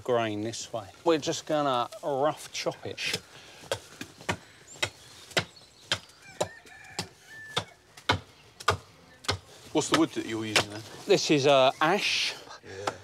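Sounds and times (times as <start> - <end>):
axe chopping log: 3.1 - 10.8.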